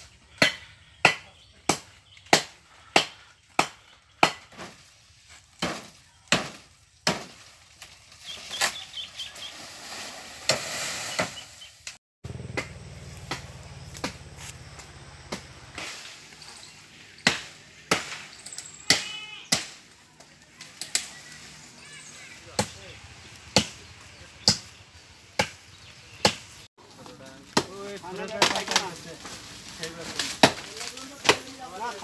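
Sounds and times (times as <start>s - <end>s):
leaves rustling: 4.5s - 12.0s, 12.7s - 32.0s
blade chopping into a tree: 10.4s - 14.6s, 30.1s - 31.5s.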